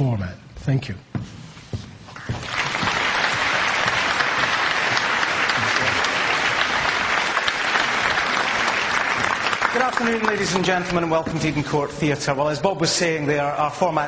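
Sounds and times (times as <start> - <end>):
audience applauding: 2.2 - 11.8.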